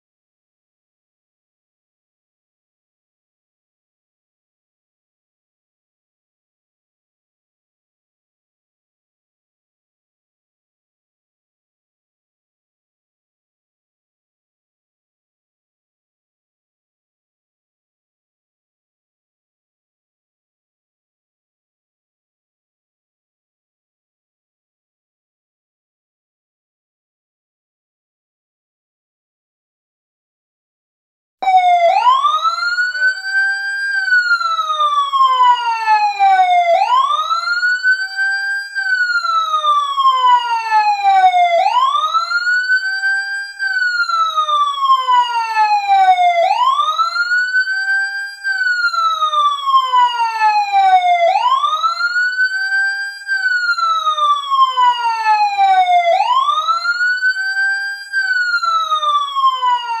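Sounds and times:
fire truck siren wailing: 31.4s - 60.0s.

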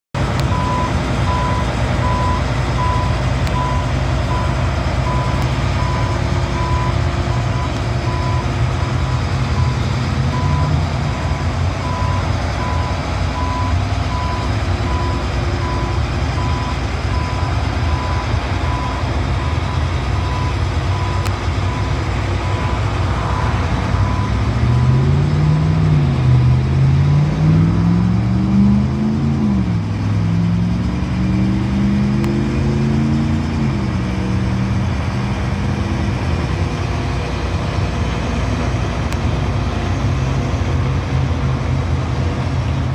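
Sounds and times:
combine diesel engine running: 0.2s - 42.9s
backup alarm beeping: 0.5s - 24.4s.

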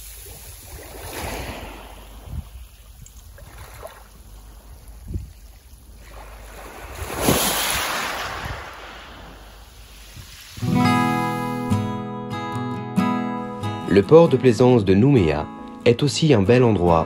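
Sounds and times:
wind rumbling on microphone: 0.0s - 10.8s
waves washing onto gravel beach: 0.0s - 11.7s.

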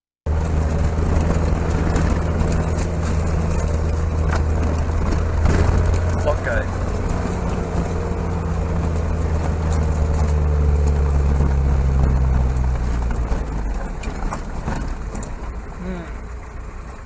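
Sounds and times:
vehicle engine running: 0.2s - 17.0s.

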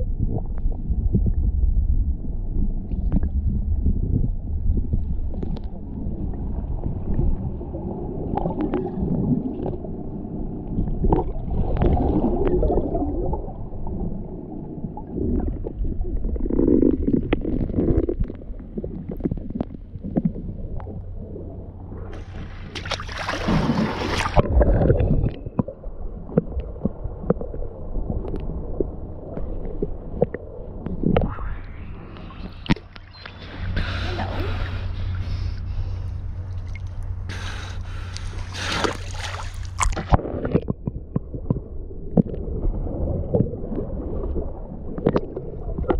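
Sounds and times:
underwater rumbling gurgle: 0.0s - 45.9s
water splashing rush: 22.1s - 25.5s, 36.5s - 40.7s.

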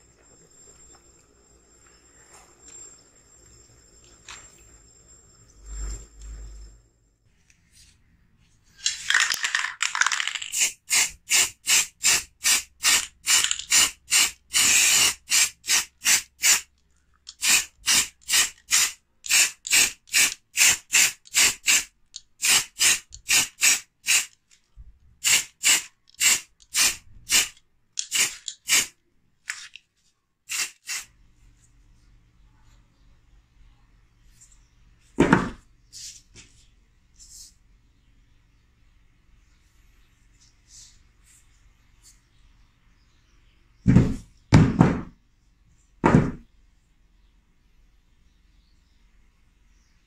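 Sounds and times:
spray paint can hissing: 8.8s - 16.7s, 17.3s - 24.3s, 25.2s - 28.9s, 30.5s - 31.1s.

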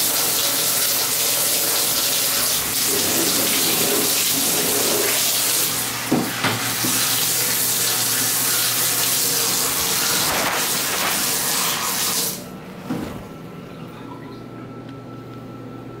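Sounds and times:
water running into bathtub: 0.0s - 12.5s.

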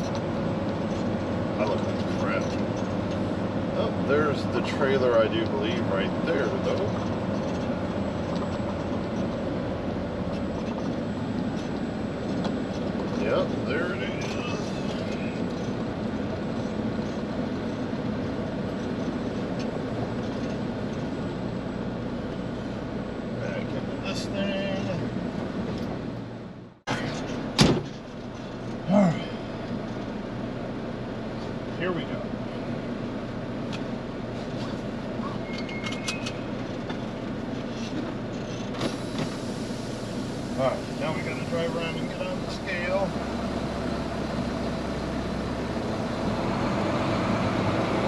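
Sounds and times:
diesel truck engine running: 0.0s - 48.0s
road noise: 0.0s - 48.0s
short squeaks and clicks: 35.2s - 36.9s.

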